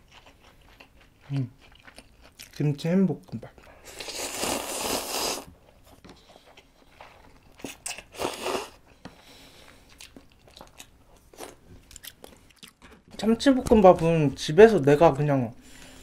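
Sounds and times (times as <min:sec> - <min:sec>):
chewing: 0:00.0 - 0:13.1
person slurping noodles: 0:03.8 - 0:05.5, 0:08.1 - 0:08.8.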